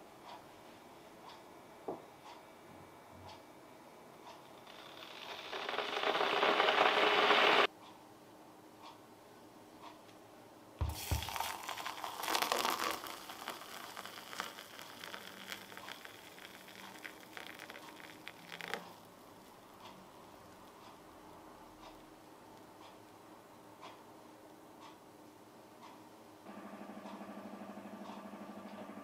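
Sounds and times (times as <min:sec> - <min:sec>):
coffee foam crackling: 0:04.6 - 0:07.7, 0:10.8 - 0:19.6
electric kettle heating water: 0:04.6 - 0:07.7, 0:10.8 - 0:20.8
hot water poured into a mug: 0:05.2 - 0:07.7, 0:10.8 - 0:19.0.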